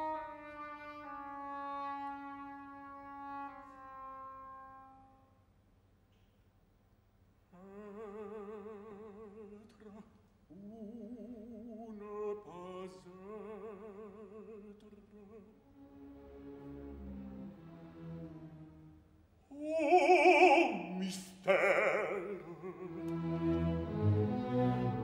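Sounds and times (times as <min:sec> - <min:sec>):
operatic baritone singing: 0:07.6 - 0:15.6, 0:19.5 - 0:23.9.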